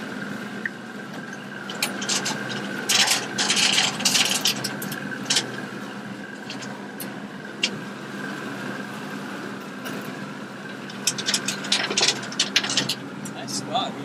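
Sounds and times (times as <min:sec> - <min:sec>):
boat engine running: 0:00.0 - 0:14.0
rubbing and scraping: 0:01.6 - 0:06.8.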